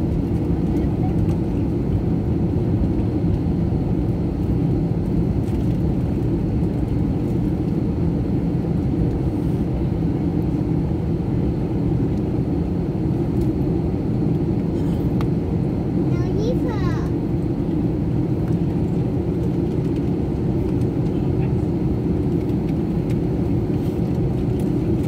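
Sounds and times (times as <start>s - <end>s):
jet engines idling in cabin: 0.0s - 25.0s.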